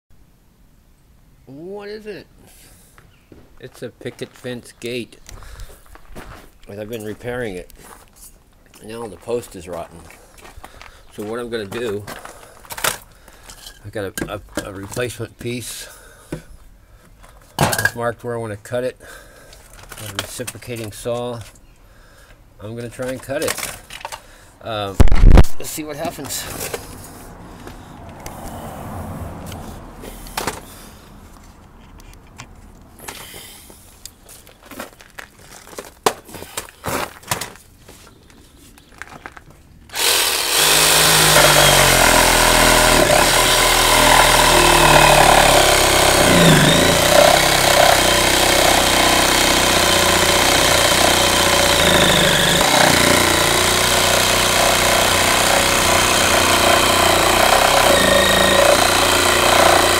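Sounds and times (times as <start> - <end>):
reciprocating saw cutting wood: 39.9 - 59.9.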